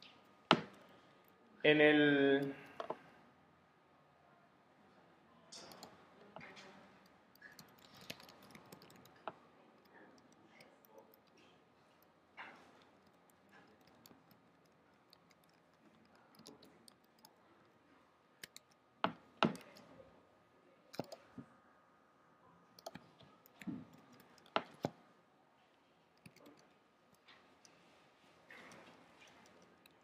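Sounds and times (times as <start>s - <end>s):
computer keyboard and mouse clicks: 0.0s - 0.9s, 5.6s - 17.7s, 18.4s - 19.9s, 20.9s - 21.5s, 22.8s - 25.0s, 26.2s - 27.9s, 28.5s - 30.0s.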